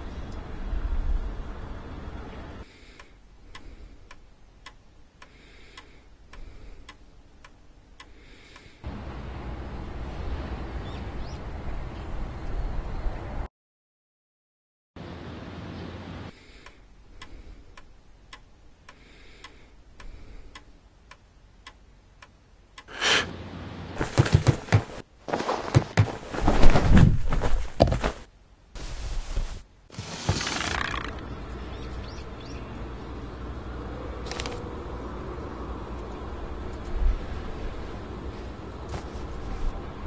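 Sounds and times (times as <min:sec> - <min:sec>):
clock ticking: 0:16.6 - 0:22.9.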